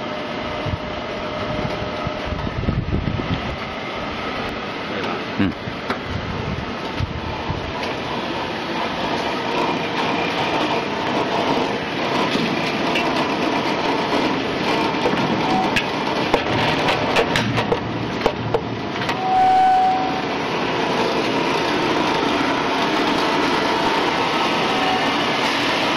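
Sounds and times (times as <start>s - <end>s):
short squeak: 19.2s - 20.2s.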